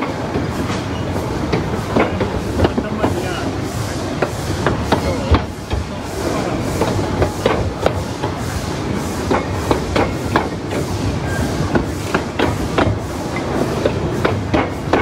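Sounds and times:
steam train rumble: 0.0s - 15.0s
wheels knocking on rails: 11.7s - 15.0s.

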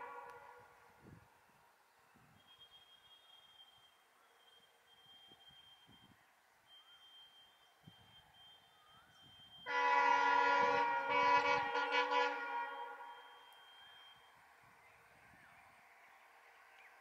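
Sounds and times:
locomotive horn blast: 0.0s - 0.9s, 9.7s - 13.6s.

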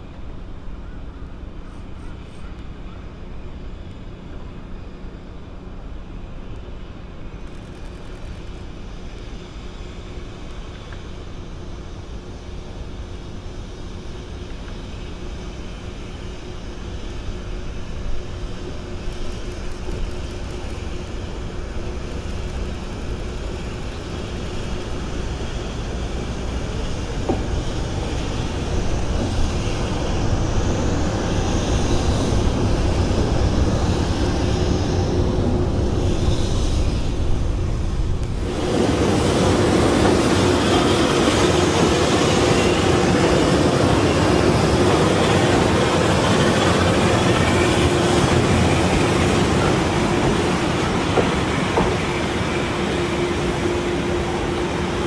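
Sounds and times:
electric locomotive approaching: 0.0s - 55.0s
wheels on rail: 17.0s - 55.0s.

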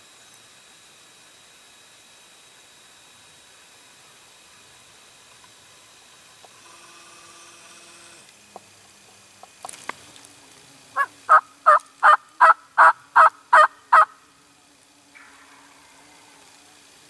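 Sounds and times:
turkey call yelps: 10.9s - 14.2s.

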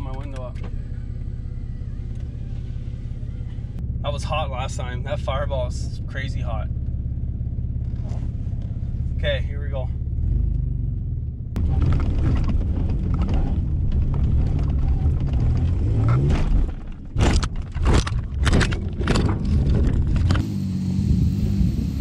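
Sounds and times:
pickup engine running hard: 0.0s - 10.8s, 19.0s - 22.0s
truck landing bangs and thuds: 11.6s - 20.4s.

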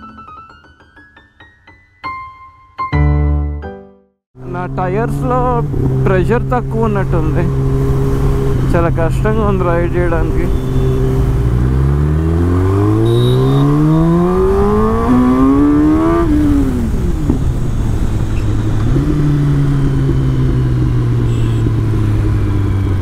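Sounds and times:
motorcycle engine revving: 4.4s - 23.0s
wind rush on microphone: 5.5s - 11.6s, 14.3s - 23.0s.

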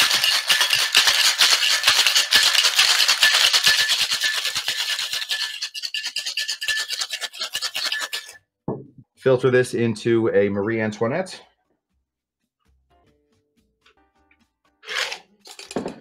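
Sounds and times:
ice rattling in metal cocktail shaker: 0.0s - 8.4s, 14.8s - 15.9s.

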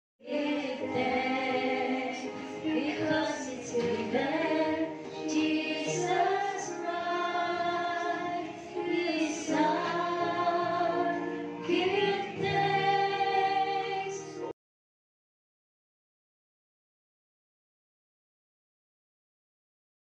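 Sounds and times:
group of women singing: 0.2s - 14.5s.

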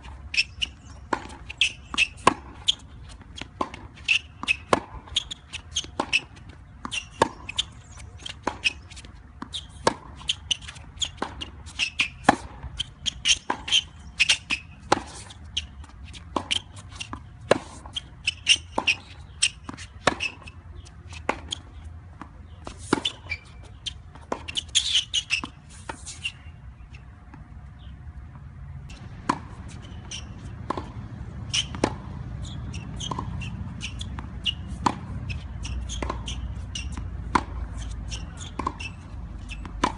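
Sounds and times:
ball bouncing on court: 0.4s - 20.5s, 28.9s - 39.9s.

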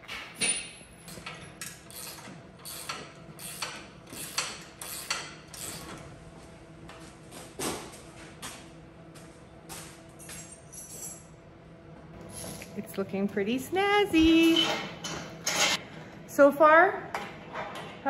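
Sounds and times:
metal parts clinking: 10.2s - 11.3s.

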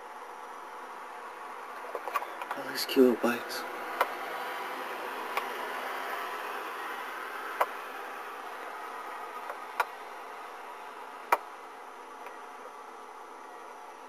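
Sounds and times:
steady low hum and hiss: 0.0s - 14.0s
sharp clicks: 7.6s - 7.8s, 11.3s - 11.5s.

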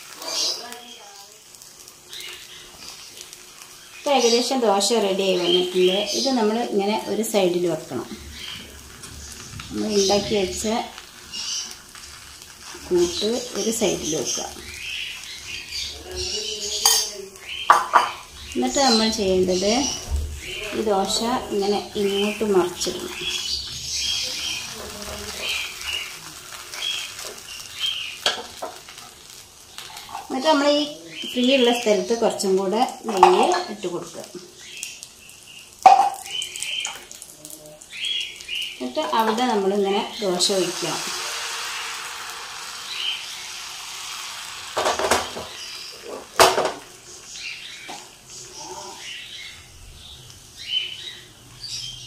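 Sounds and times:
faint sizzling in a pan: 0.0s - 52.0s
utensil clinking against cookware: 16.7s - 18.2s.

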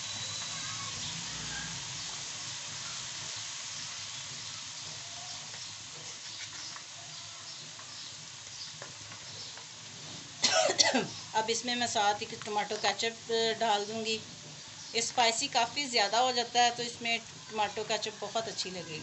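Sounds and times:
food sizzling in a metal pan: 0.0s - 19.0s.

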